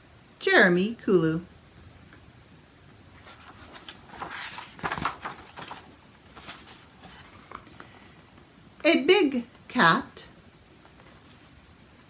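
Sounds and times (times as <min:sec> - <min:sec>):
book pages rustling: 0:03.2 - 0:08.0.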